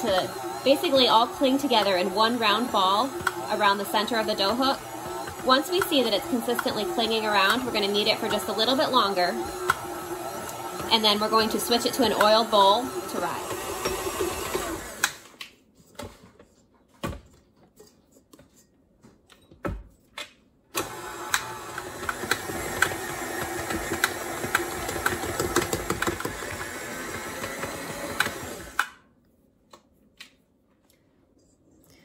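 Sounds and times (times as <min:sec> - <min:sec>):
regular mixer tick: 0:00.0 - 0:15.2, 0:20.8 - 0:28.9
stand mixer motor kneading dough: 0:00.0 - 0:15.2, 0:20.8 - 0:28.8.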